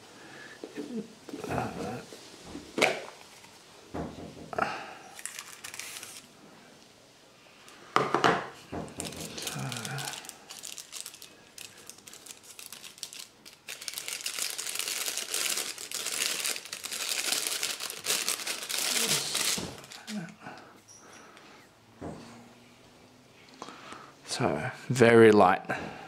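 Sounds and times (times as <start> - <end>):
plastic wrapping crinkling: 5.1 - 6.3, 8.9 - 20.4.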